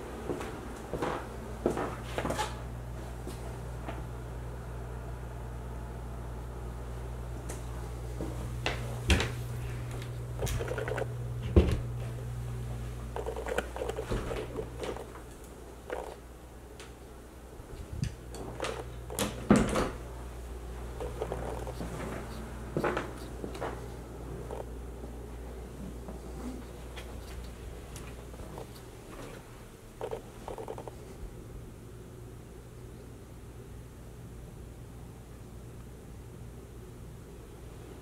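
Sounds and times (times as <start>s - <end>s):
low steady hum: 0.0s - 38.0s
knocks and clicks: 10.4s - 11.1s, 13.2s - 15.1s, 15.9s - 16.2s, 21.0s - 21.8s
footsteps: 13.2s - 15.3s, 21.0s - 24.6s.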